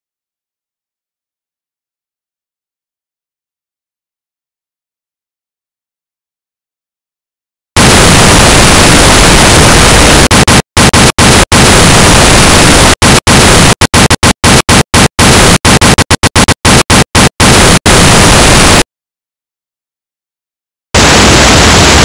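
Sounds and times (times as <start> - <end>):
electronic white noise hiss: 7.8 - 18.8, 21.0 - 22.0.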